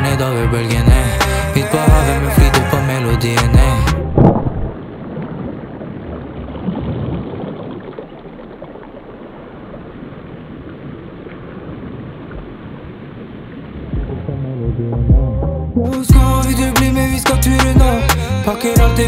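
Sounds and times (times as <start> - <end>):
muffled underwater water rush: 3.9 - 14.7.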